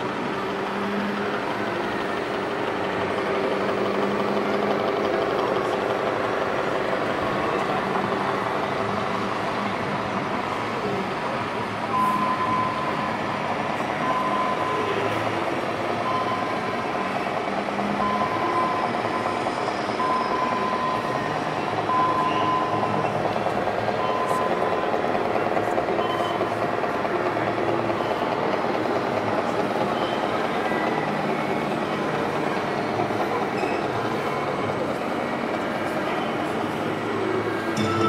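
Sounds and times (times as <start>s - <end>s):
model truck diesel engine sound: 0.0s - 38.0s
murmur of crowd: 0.0s - 38.0s
reversing warning beep: 11.9s - 35.0s.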